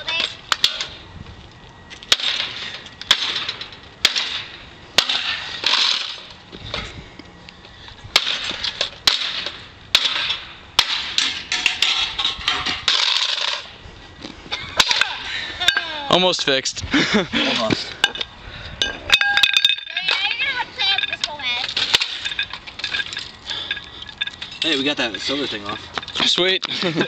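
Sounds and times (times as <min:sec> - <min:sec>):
loose parts rattling: 0:05.0 - 0:06.9, 0:07.6 - 0:13.8, 0:17.5 - 0:27.0.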